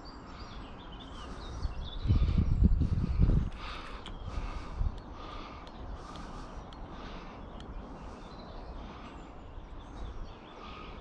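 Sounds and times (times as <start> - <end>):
faint bird calls: 0.0 - 11.0
wind buffeting microphone: 0.7 - 11.0
faint ticks: 4.9 - 7.8.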